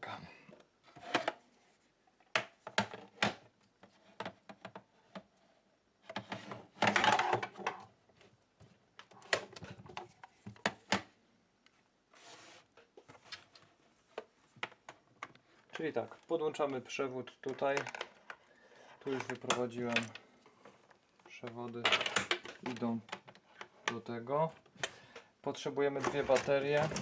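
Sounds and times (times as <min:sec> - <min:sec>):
plastic clicks and knocks: 0:17.4 - 0:18.4, 0:19.1 - 0:20.3, 0:21.2 - 0:24.0
equipment rustling and rattling: 0:26.0 - 0:27.0.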